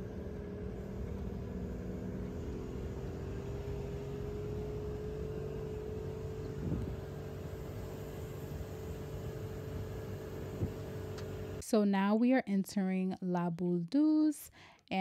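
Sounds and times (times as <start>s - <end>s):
engine and tyre rumble: 0.0s - 11.6s.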